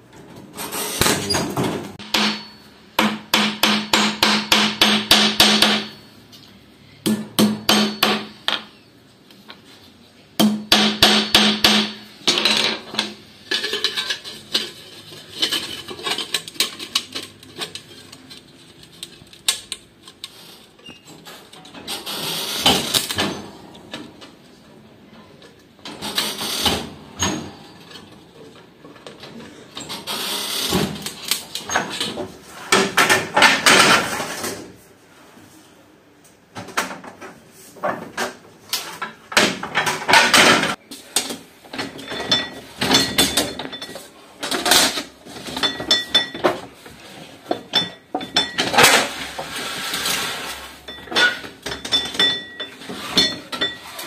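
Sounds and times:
objects knocking and scraping: 0:11.2 - 0:24.5, 0:25.2 - 0:34.8, 0:36.5 - 0:54.0.

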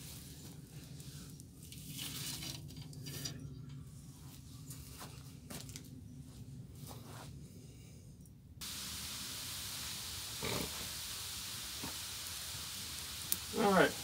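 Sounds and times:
kettle water boiling hiss: 0:08.6 - 0:14.0
wood fire crackling: 0:08.6 - 0:14.0.

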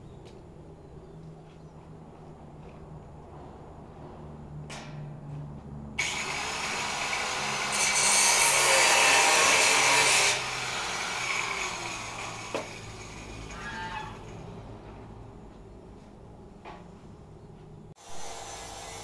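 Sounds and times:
angle grinder grinding steel: 0:06.0 - 0:14.5.

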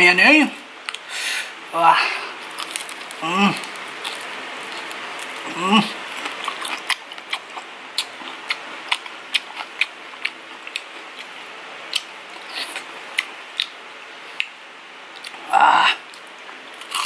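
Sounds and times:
crunching and chewing crispy food: 0:02.1 - 0:17.0.

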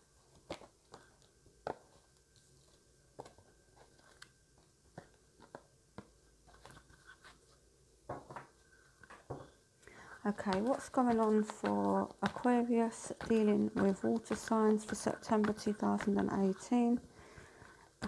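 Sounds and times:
cards being shuffled: 0:06.5 - 0:07.6.

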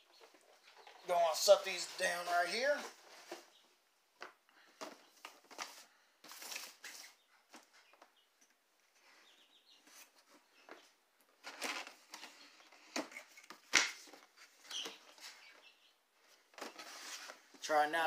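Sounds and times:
cardboard rustling and scraping: 0:01.4 - 0:03.6, 0:04.8 - 0:07.7, 0:16.3 - 0:17.6.

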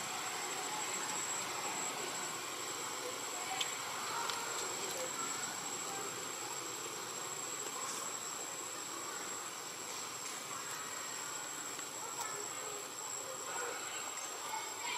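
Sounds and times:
high-pitched insect drone: 0:00.0 - 0:14.9
steady forest hiss: 0:00.0 - 0:14.9
faint clicks: 0:03.5 - 0:05.0.

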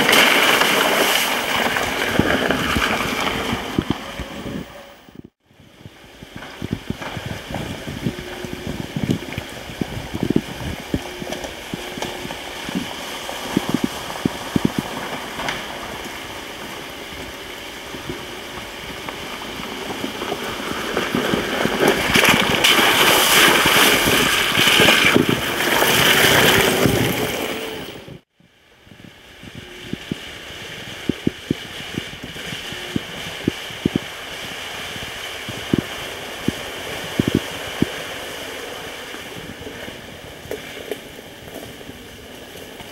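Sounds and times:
tyres splashing through mud: 0:00.0 - 0:04.6, 0:06.3 - 0:27.9
electric golf cart driving: 0:00.0 - 0:28.2, 0:29.0 - 0:42.9.

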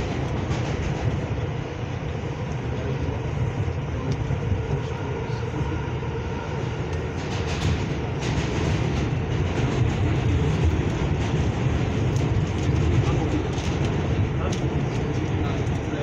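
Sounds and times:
train rumbling on track: 0:00.0 - 0:16.0
wheels and car body rattling: 0:07.1 - 0:16.0.

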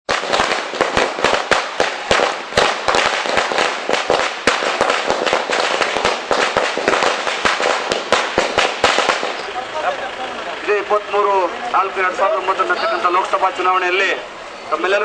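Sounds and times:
firecrackers banging: 0:00.0 - 0:15.0.

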